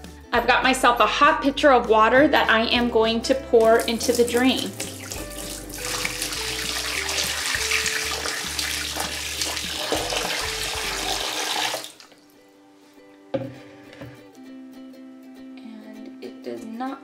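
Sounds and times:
water pouring into bathtub: 0:03.8 - 0:12.3.

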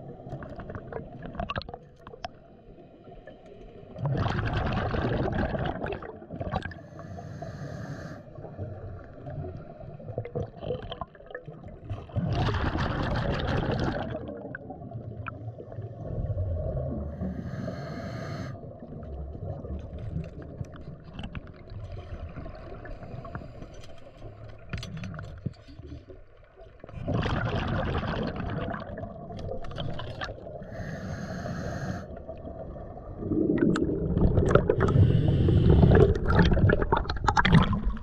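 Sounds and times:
gurgling exhaled bubbles: 0:00.0 - 0:02.5, 0:03.9 - 0:06.9, 0:08.4 - 0:17.7, 0:18.5 - 0:23.6, 0:26.7 - 0:38.0
regulator inhalation hiss: 0:17.2 - 0:18.6, 0:30.7 - 0:32.1, 0:34.9 - 0:36.0.

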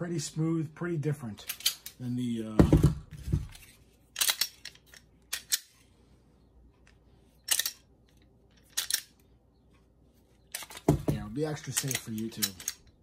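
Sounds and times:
pistol metallic clicks: 0:04.2 - 0:05.8, 0:07.4 - 0:09.2, 0:11.6 - 0:13.0.

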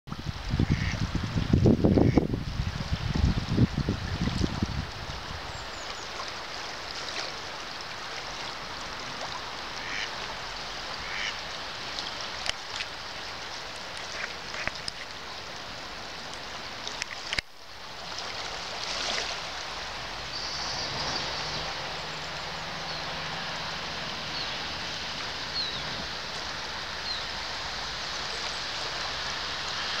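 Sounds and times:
fast-flowing river rushing: 0:00.2 - 0:30.0
ducks quacking: 0:00.7 - 0:01.0, 0:09.8 - 0:10.1, 0:11.0 - 0:11.4.

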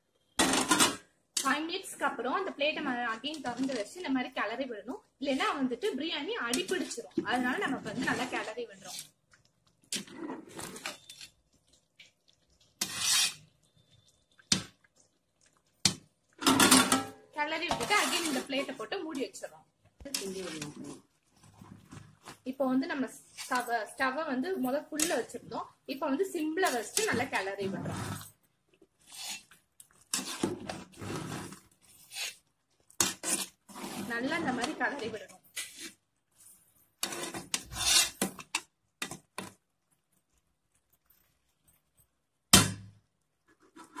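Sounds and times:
spoon scraping in metal pot: 0:12.6 - 0:14.6, 0:17.7 - 0:18.8, 0:26.6 - 0:28.4, 0:29.0 - 0:32.4, 0:33.0 - 0:36.0, 0:37.0 - 0:38.5.

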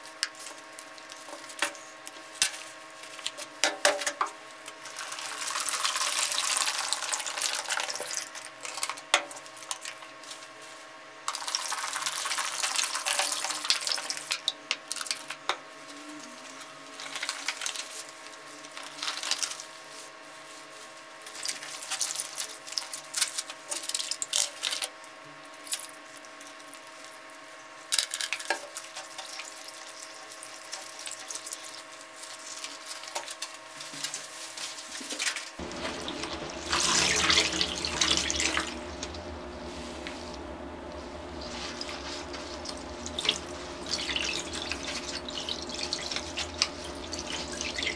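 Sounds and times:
gloved hands rubbing wet clothes: 0:33.9 - 0:47.9
water splashing and sloshing: 0:35.0 - 0:47.9
water pouring into basin: 0:35.6 - 0:39.3, 0:41.4 - 0:47.9.

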